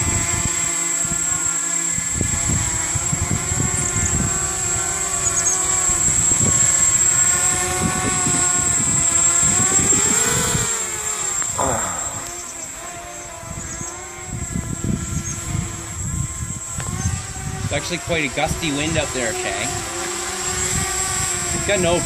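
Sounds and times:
drone propellers whining: 0.0s - 22.0s
wind rumbling on microphone: 0.0s - 22.0s.

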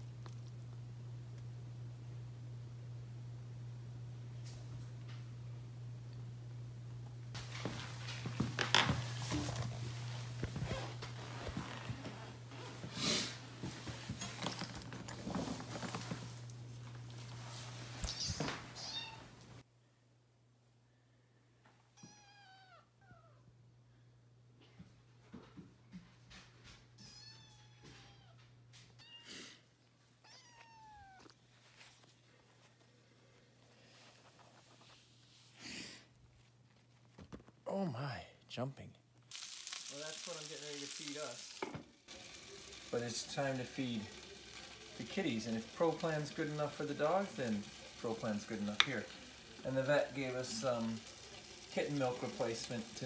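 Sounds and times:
kitten meowing: 18.1s - 19.2s, 22.0s - 23.4s, 27.0s - 28.3s, 30.2s - 31.3s.

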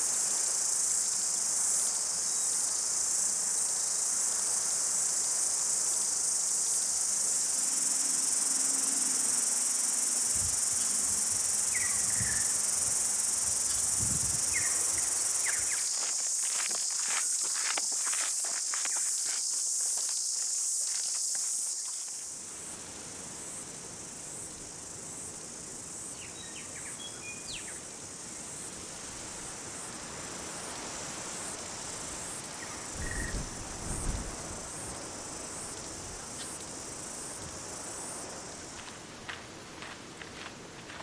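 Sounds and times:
high-pitched insect chorus: 0.0s - 41.0s.

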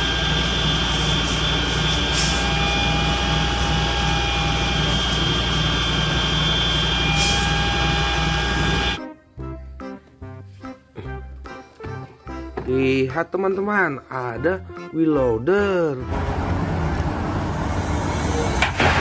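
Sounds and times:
diesel engine throbbing: 0.0s - 9.0s, 16.1s - 19.0s
high-pitched whine: 0.0s - 9.0s.

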